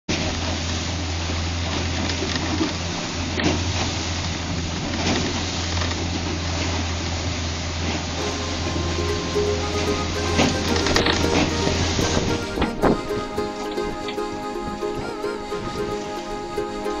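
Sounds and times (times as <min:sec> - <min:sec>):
wind and water rushing: 0:00.2 - 0:17.0
boat motor humming: 0:08.2 - 0:17.0.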